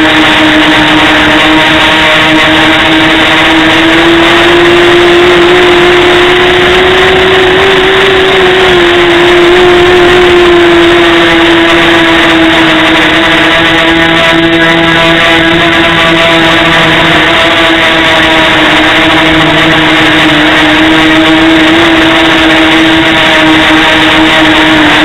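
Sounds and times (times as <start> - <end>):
drone motors whining: 0.0 - 25.0.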